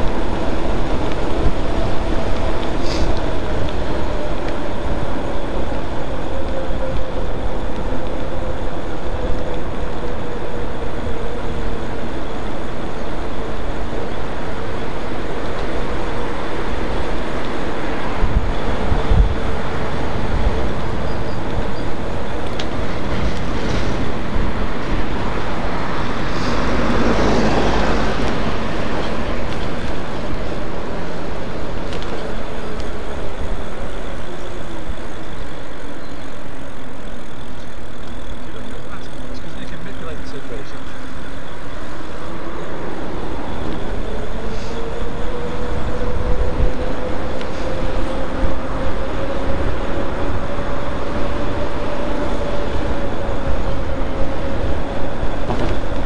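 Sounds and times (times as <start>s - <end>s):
wind rushing over microphone: 0.0s - 36.7s, 39.6s - 56.0s
bike tyre noise: 0.0s - 56.0s.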